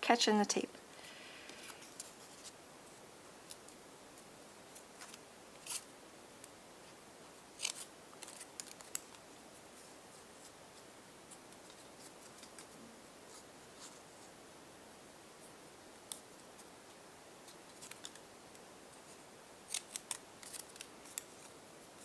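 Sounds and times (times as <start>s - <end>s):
paper crinkling: 7.6s - 9.3s, 11.5s - 14.3s, 17.4s - 18.3s, 18.9s - 22.0s
scissors snipping: 19.7s - 21.5s.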